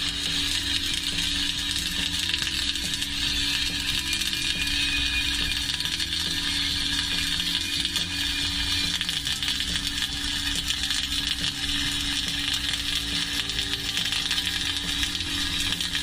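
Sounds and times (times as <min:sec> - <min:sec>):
steady hum: 0:00.0 - 0:16.0
welding arc crackling: 0:00.0 - 0:16.0.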